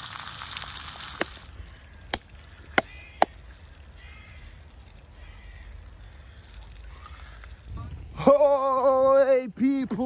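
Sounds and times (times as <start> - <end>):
frying sizzle: 0.0 - 1.5.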